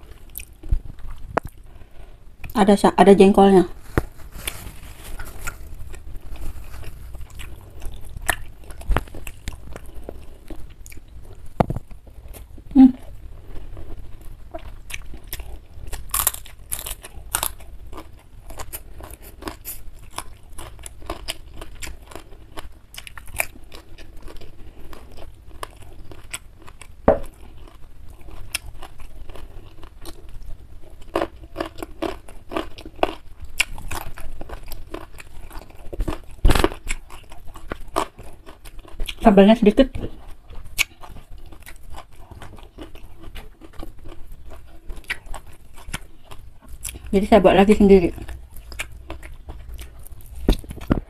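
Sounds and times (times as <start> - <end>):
crunchy chewing: 3.7 - 39.2, 40.1 - 47.1, 48.1 - 51.0.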